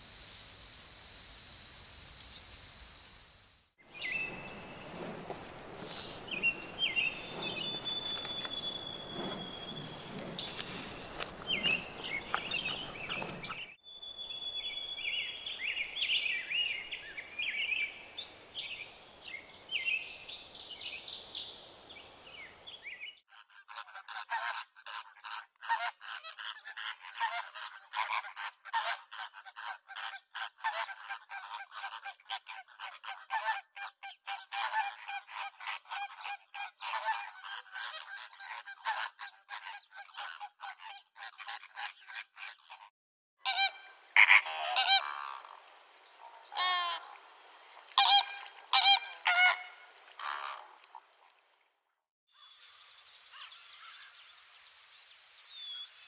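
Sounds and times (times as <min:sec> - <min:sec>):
small birds chirping: 0:03.9 - 0:23.2, 0:52.4 - 0:56.0
flamingo flock honking: 0:43.4 - 0:45.6, 0:46.5 - 0:47.2, 0:48.0 - 0:50.7.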